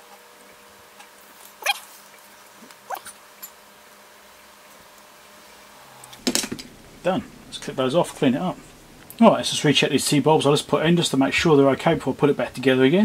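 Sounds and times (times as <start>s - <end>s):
squeaky animal calls: 1.6s - 1.9s, 2.9s - 3.2s.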